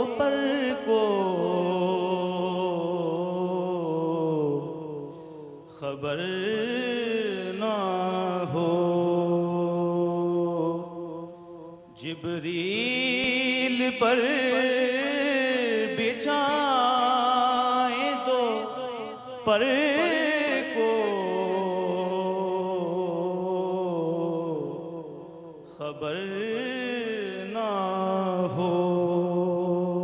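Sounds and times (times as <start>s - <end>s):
singer breathing: 5.1s - 5.7s
man singing solo: 12.0s - 18.7s.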